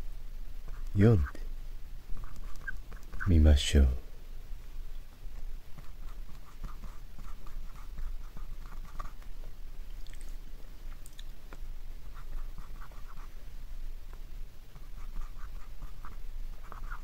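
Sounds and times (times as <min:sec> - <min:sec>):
marker writing on whiteboard: 0:14.8 - 0:17.0.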